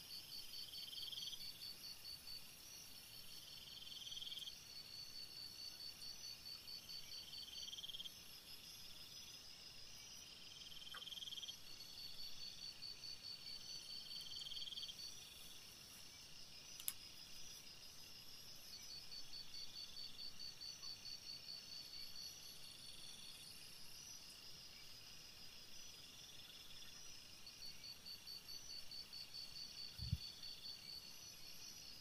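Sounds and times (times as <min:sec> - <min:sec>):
low buzzy insect call: 0:00.0 - 0:32.0
crickets trilling: 0:00.5 - 0:32.0
sharp click: 0:16.8 - 0:17.0.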